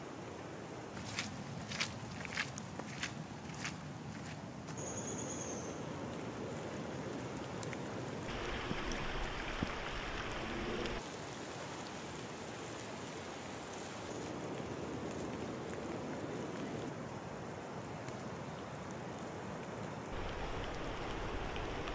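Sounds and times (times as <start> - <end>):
rain falling on wet leaves: 4.7 - 21.9
rushing flooded creek: 5.8 - 21.9.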